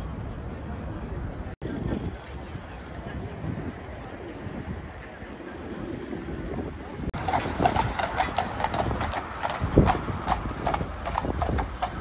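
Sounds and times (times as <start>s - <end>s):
city traffic rumble: 0.0s - 12.0s
horse hooves clip-clopping on pavement: 7.2s - 12.0s.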